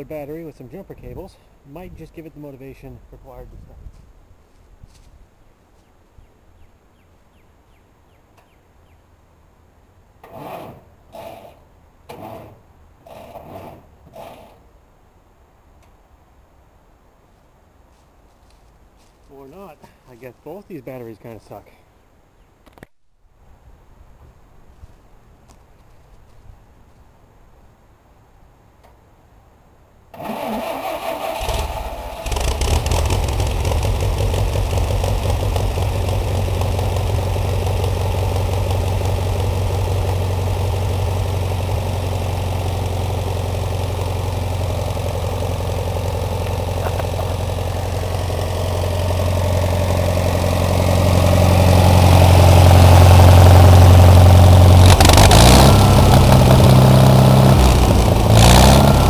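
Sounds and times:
electric starter cranking: 0:30.2 - 0:35.2, 0:54.8 - 0:59.0
engine running steadily: 0:31.4 - 0:59.0.

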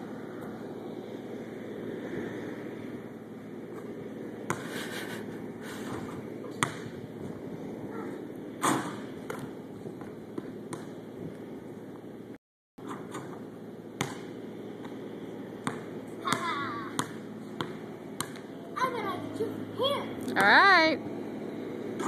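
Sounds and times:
steady low hum: 0:00.0 - 0:22.0
ball hitting backboard and rim: 0:05.9 - 0:07.0, 0:08.0 - 0:11.0, 0:12.8 - 0:15.0, 0:15.6 - 0:18.5
basketball bouncing on concrete: 0:06.5 - 0:07.0, 0:08.7 - 0:11.0, 0:14.0 - 0:15.0, 0:15.6 - 0:18.5.

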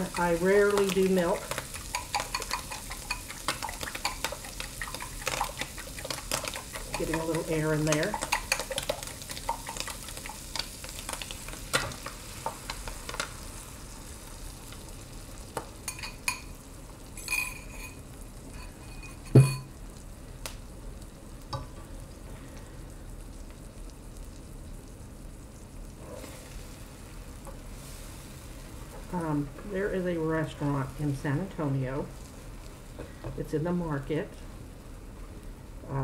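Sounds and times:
eggs sizzling in a skillet: 0:00.0 - 0:36.0
fork clicking against glass bowl: 0:01.8 - 0:05.7.

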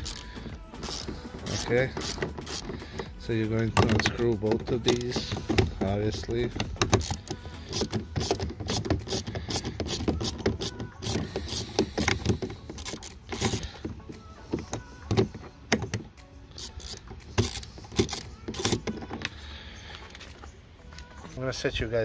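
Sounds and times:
screwdriver clicking in screws: 0:00.0 - 0:03.1, 0:06.6 - 0:13.7, 0:15.1 - 0:19.3.

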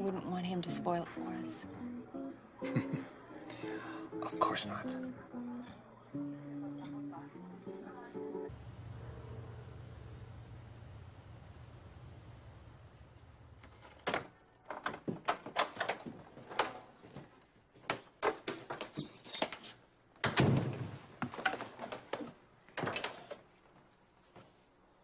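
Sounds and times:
front door opening: 0:13.6 - 0:17.1.

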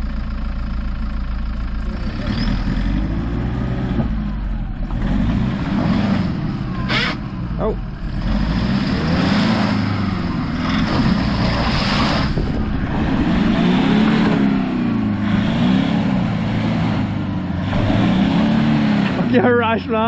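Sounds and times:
engine revving: 0:01.8 - 0:20.0
spinning tyres throwing mud: 0:08.4 - 0:19.4.

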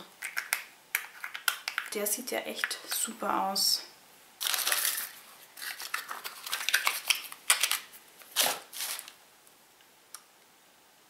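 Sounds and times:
packaging clicks taps and rustles: 0:00.2 - 0:02.0, 0:04.4 - 0:09.2.

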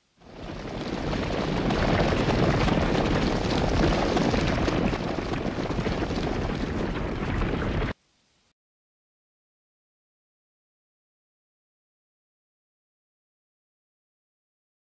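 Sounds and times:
many horses galloping: 0:00.2 - 0:08.0.

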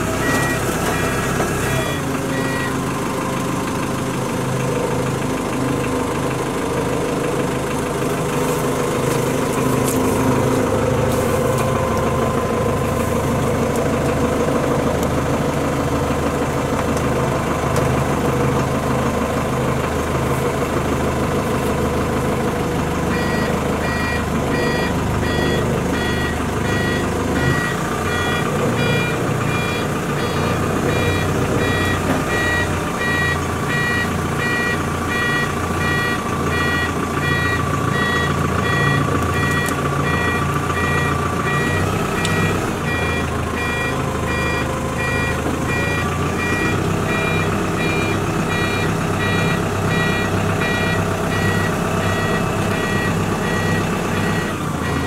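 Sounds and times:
diesel engine running: 0:00.0 - 0:55.0
backup alarm beeping: 0:00.2 - 0:02.8, 0:23.1 - 0:55.0.

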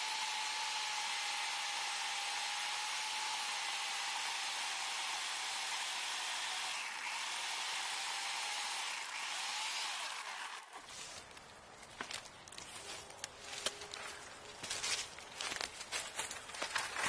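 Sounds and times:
electric chainsaw cutting wood: 0:00.0 - 0:10.9
faint wood crackles: 0:10.6 - 0:17.0.

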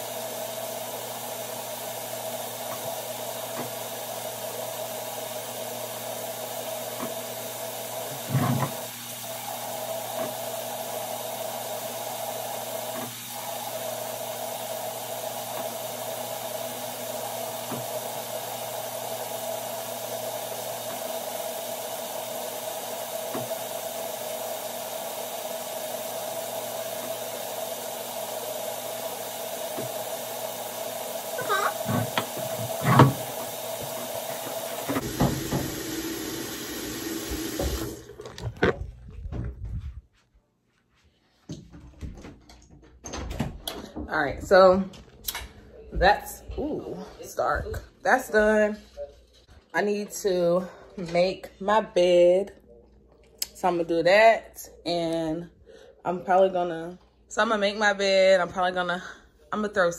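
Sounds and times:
fan whirring: 0:00.0 - 0:40.1.

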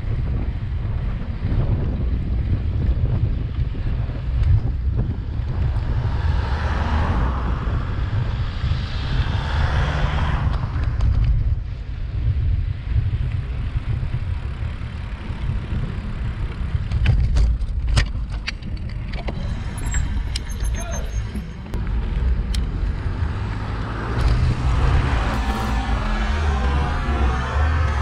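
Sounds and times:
road traffic: 0:00.0 - 0:28.0
wind rumbling on microphone: 0:00.0 - 0:28.0
passing car tyre noise: 0:04.6 - 0:17.0, 0:18.6 - 0:28.0.

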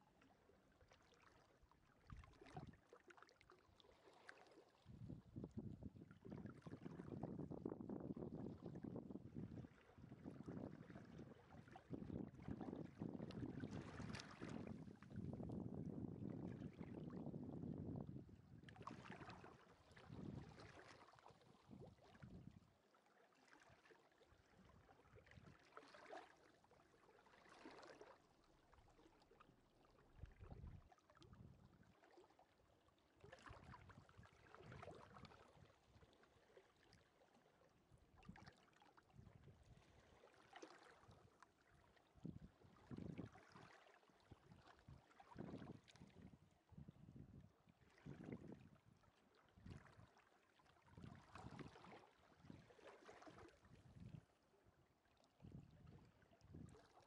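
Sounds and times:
wind rumble on microphone: 0:02.1 - 0:02.8, 0:04.8 - 0:22.7, 0:24.4 - 0:25.6, 0:30.2 - 0:32.0, 0:33.3 - 0:36.0, 0:39.1 - 0:40.0, 0:42.2 - 0:43.6, 0:44.3 - 0:49.0, 0:49.6 - 0:50.1, 0:50.9 - 0:54.3, 0:55.4 - 0:56.9
gentle sea waves on beach: 0:09.4 - 0:15.6, 0:18.4 - 0:46.7, 0:47.7 - 0:57.0.

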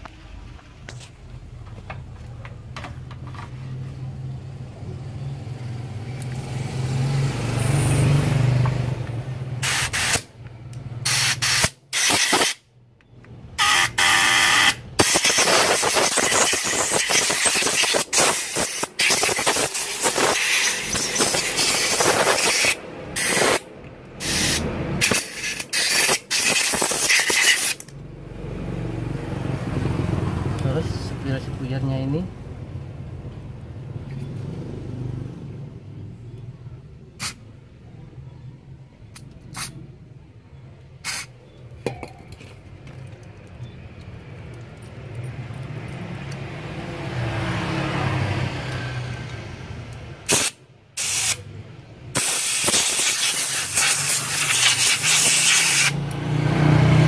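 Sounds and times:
air gun hissing blasts: 0:09.6 - 0:10.3, 0:11.0 - 0:12.6, 0:13.6 - 0:27.8, 0:41.0 - 0:41.3, 0:50.3 - 0:51.4, 0:52.1 - 0:56.0.

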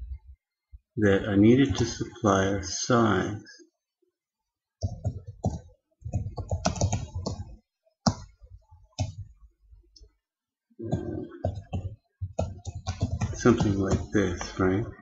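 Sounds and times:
computer keyboard typing: 0:04.8 - 0:09.4, 0:10.9 - 0:15.0.

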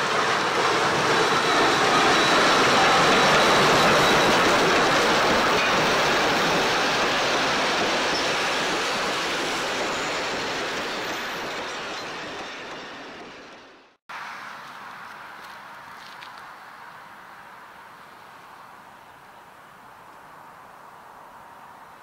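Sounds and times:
steam train passing: 0:00.0 - 0:15.5.

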